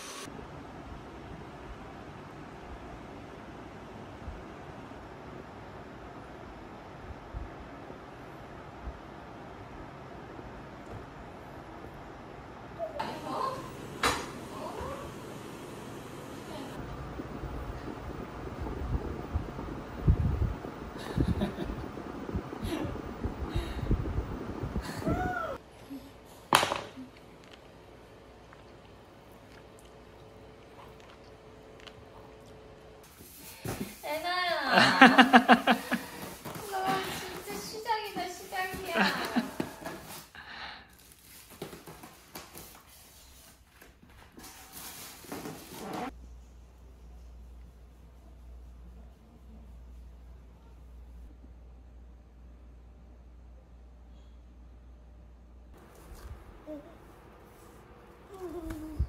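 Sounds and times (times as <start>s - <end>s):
polystyrene foam scraping: 35.8s - 43.6s, 44.4s - 46.1s.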